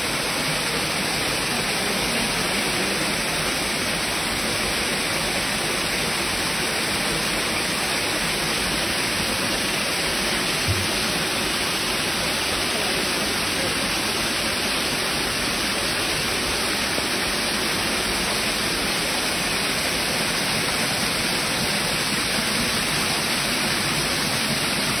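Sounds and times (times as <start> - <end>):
waterfall rushing into pool: 0.0 - 25.0
low thump: 10.6 - 11.0.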